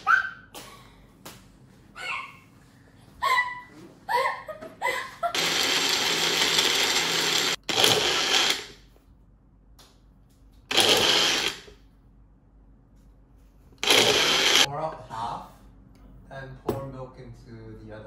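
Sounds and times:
blender pulsing: 5.3 - 8.8, 10.7 - 11.7, 13.8 - 14.7.

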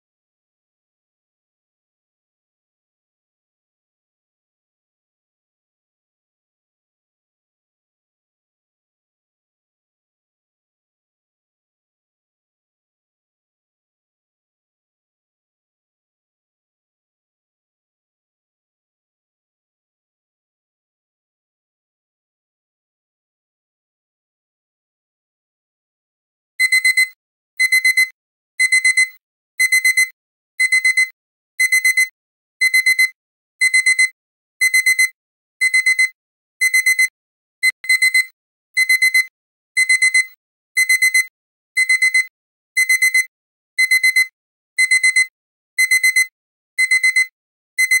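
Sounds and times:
digital alarm clock beeping: 26.6 - 48.0.

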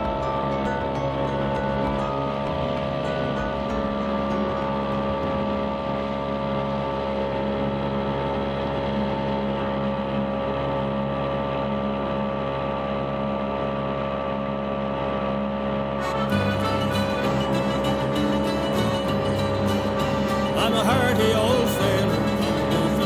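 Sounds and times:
music: 0.0 - 7.2, 16.0 - 23.0
outboard motor running: 0.0 - 23.0.

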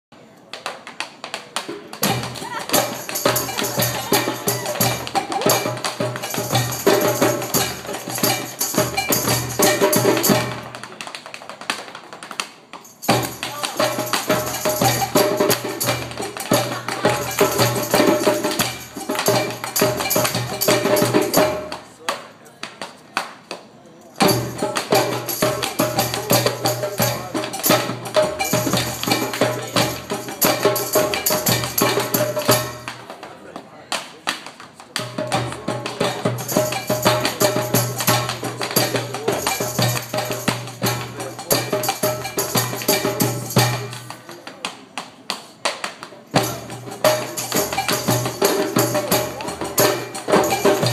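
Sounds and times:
tap shoes clicking: 0.4 - 6.4, 10.7 - 14.3
live jam music: 1.8 - 11.1, 12.8 - 21.9, 24.2 - 33.1, 35.0 - 44.4, 46.1 - 50.9.

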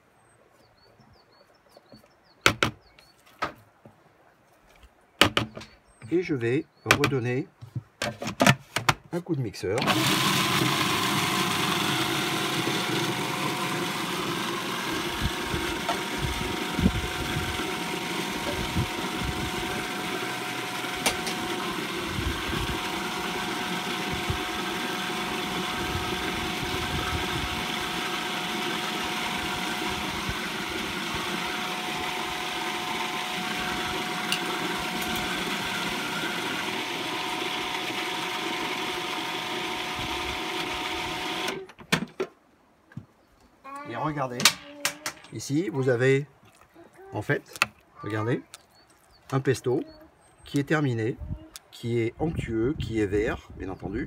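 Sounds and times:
food processor motor whine: 9.8 - 41.6.

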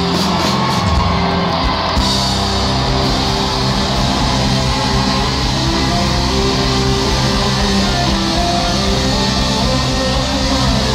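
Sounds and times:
live rock band playing: 0.0 - 10.9.

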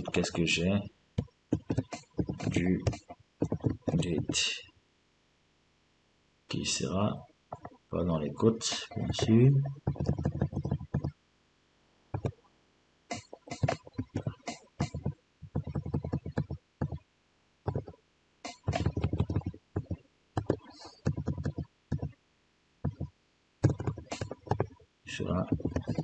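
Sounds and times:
computer keyboard typing: 1.5 - 4.4, 8.7 - 11.1, 12.2 - 12.4, 13.1 - 17.0, 17.7 - 22.1, 22.9 - 24.8, 25.5 - 26.0.

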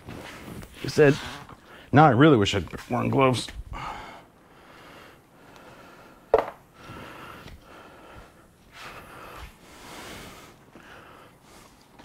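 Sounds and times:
man breathing heavily: 3.6 - 12.0.

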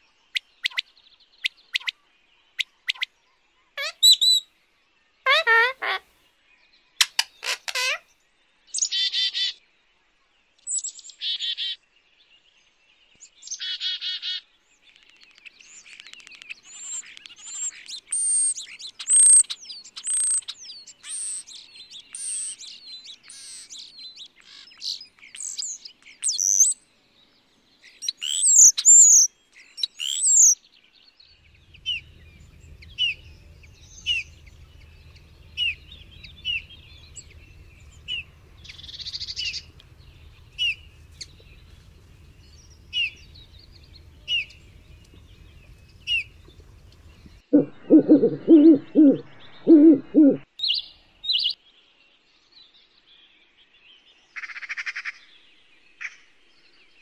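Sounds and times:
bullfinch piping calls: 3.8 - 4.4, 5.3 - 6.0, 7.0 - 8.0, 15.8 - 26.8, 28.0 - 30.6, 31.5 - 51.6
starling singing: 3.8 - 4.4, 5.3 - 6.0, 7.1 - 8.0, 31.5 - 50.4
faint low hum: 31.3 - 50.4.

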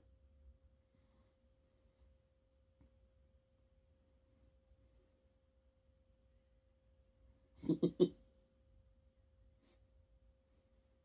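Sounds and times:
faint steady tone: 0.0 - 11.0.

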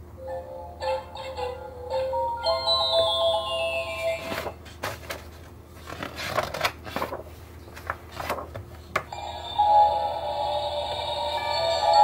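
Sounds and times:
paper pages rustling: 4.2 - 8.9.

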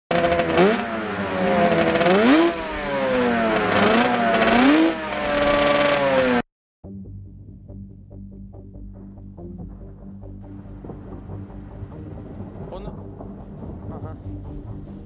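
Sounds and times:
engine revving: 0.1 - 6.4.

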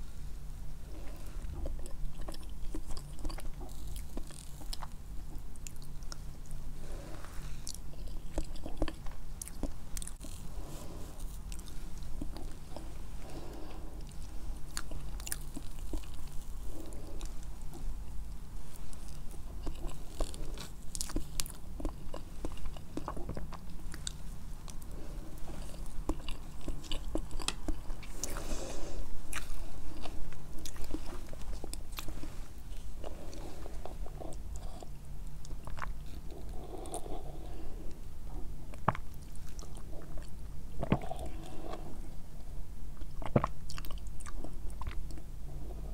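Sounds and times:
wet chewing mouth sounds: 1.4 - 6.3, 7.6 - 17.9, 43.0 - 45.3.

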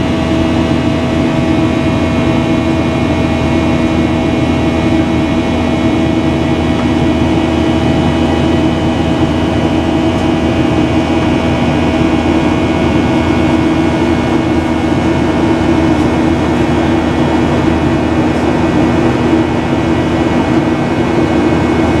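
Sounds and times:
airplane cabin engine noise: 0.0 - 22.0.

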